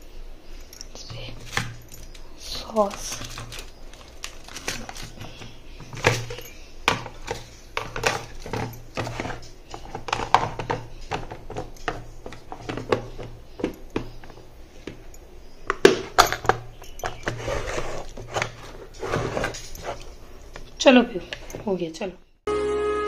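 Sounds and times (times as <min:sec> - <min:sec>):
lunch box clicks and knocks: 0:02.9 - 0:15.0, 0:15.7 - 0:20.7.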